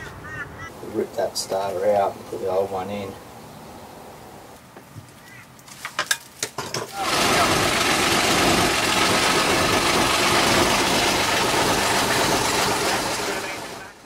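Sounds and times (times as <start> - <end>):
boat engine starting and running: 7.0 - 14.0.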